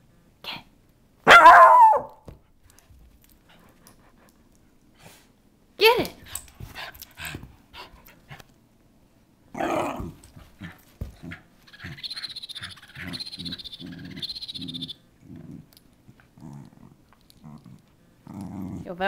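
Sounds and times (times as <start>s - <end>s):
dog growling in play: 9.5s - 12.0s, 13.0s - 19.0s
toy squeaker chirping: 11.7s - 15.0s.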